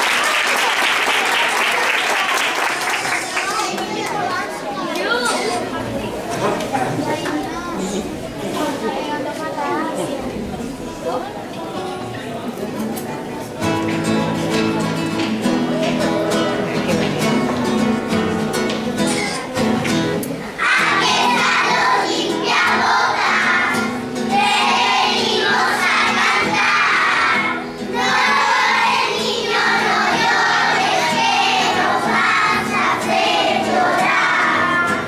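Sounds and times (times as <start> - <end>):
strummed acoustic guitar: 10.3 - 35.0
children singing in unison: 20.5 - 35.0.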